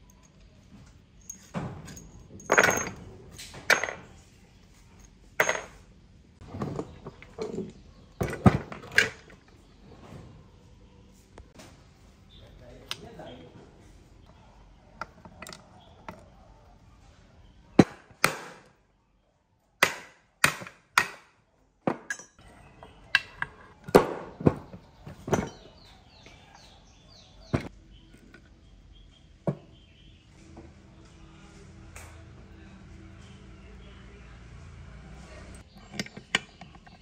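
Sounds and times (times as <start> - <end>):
metal engine parts clanking: 0.0 - 4.3, 4.9 - 9.7, 21.9 - 28.5, 35.6 - 37.0.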